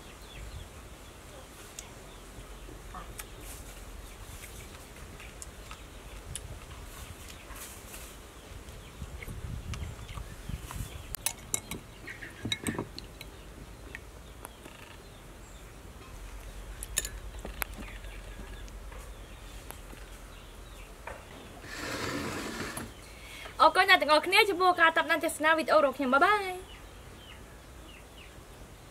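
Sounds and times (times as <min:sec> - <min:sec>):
metal spoon clinking on bowl: 0:11.2 - 0:11.8.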